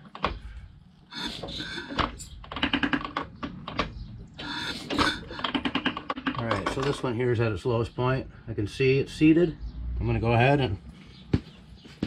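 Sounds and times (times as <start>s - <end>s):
engine turning over clicking: 0.0s - 7.1s.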